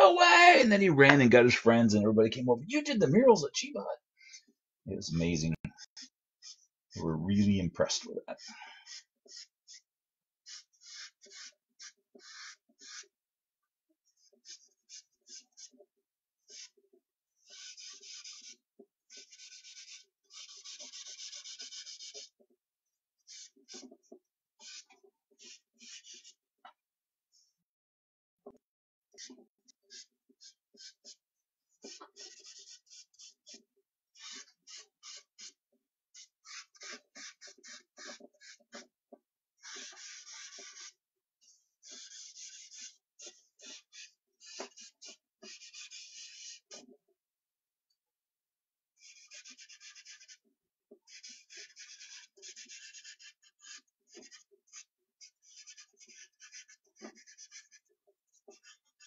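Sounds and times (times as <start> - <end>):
charcoal scratching on paper: 5.8 - 6.7, 8.4 - 13.2, 14.0 - 22.5, 23.2 - 26.4, 29.1 - 39.0, 39.6 - 47.0, 49.0 - 59.0.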